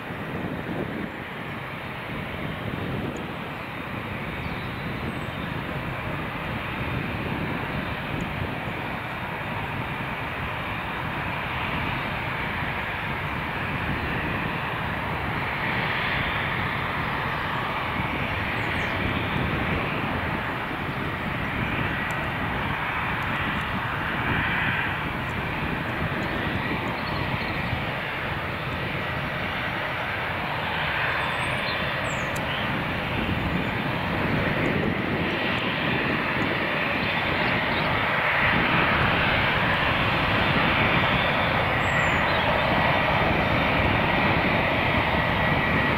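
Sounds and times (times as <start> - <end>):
jet engines rumbling: 0.0 - 45.9
faint high whine: 36.4 - 44.4.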